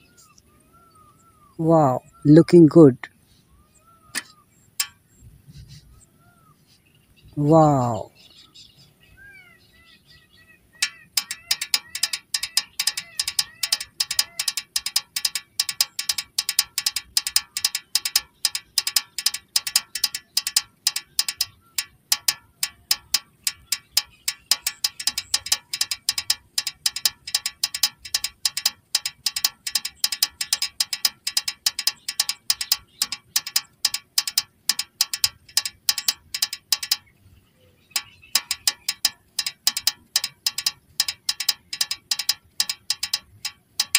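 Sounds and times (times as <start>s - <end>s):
toy mechanism clicking: 4.2s - 5.1s, 7.4s - 8.1s, 10.8s - 37.1s, 37.9s - 43.9s.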